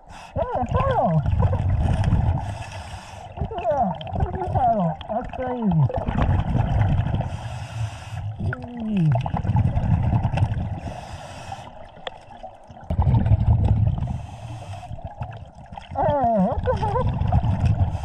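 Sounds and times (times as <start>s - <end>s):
bubbling exhales: 0.0s - 18.0s
regulator hissing inhale: 2.4s - 3.4s, 7.3s - 8.4s, 10.8s - 11.9s, 14.0s - 15.1s.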